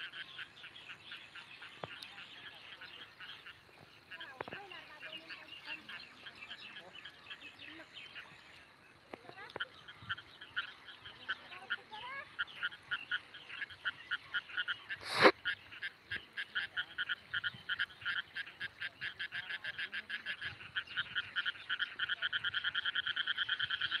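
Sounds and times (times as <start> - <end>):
short animal calls: 14.6 - 15.6.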